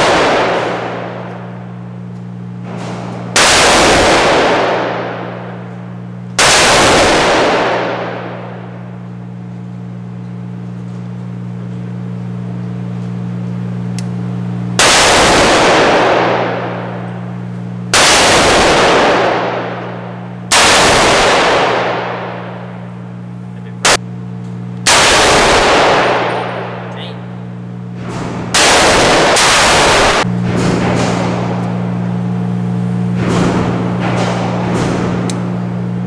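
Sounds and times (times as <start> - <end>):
gunshots with echoing tail: 0.0 - 1.9, 2.6 - 9.0, 14.8 - 23.1, 24.9 - 27.0, 28.0 - 32.1, 33.1 - 35.3
steady low hum: 0.0 - 36.0.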